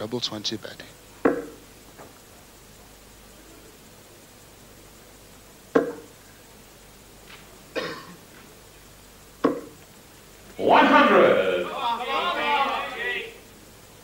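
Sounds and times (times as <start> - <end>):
darts thudding into dartboard: 1.2 - 1.6, 5.8 - 6.1, 9.4 - 9.8.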